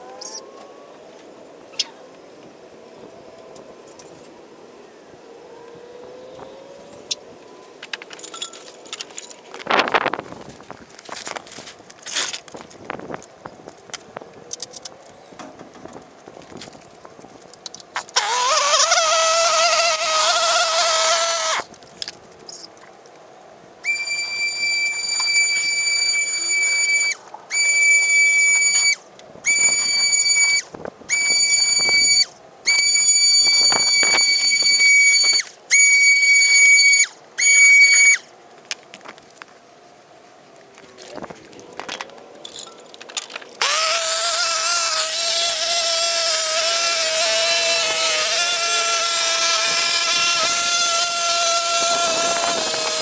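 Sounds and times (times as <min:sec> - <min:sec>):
garden power tool whining: 0:18.0 - 0:21.7, 0:43.6 - 0:53.0.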